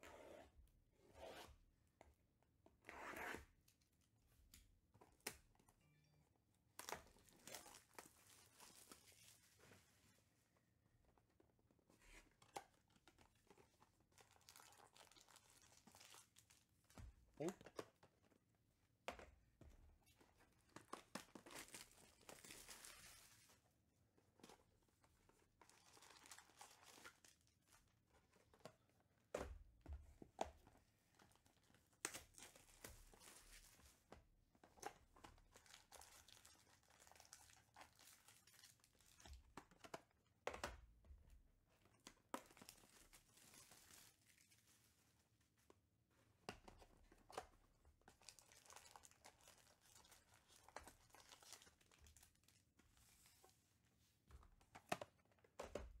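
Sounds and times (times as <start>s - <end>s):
crinkling and tearing wrappers: 14.0s - 16.6s, 20.8s - 23.5s, 25.6s - 27.6s, 35.4s - 39.3s, 42.3s - 44.8s, 48.0s - 52.6s.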